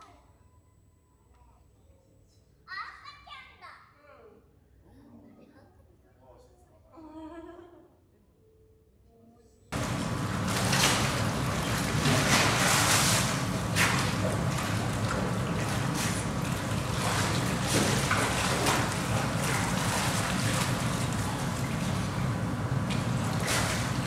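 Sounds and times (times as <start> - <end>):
steady low rumble: 9.8 - 24.0
water splashing and sloshing: 9.8 - 24.0.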